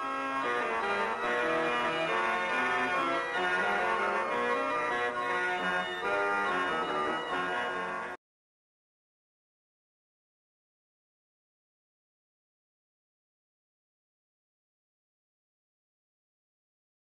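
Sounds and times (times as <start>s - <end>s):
pipe organ playing: 0.0s - 8.2s.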